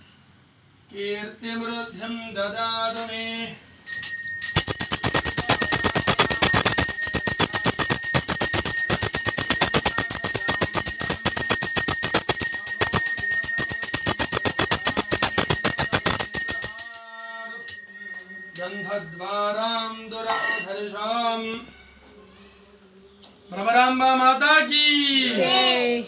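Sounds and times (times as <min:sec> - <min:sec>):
hand bell rung rapidly: 0:03.8 - 0:20.8.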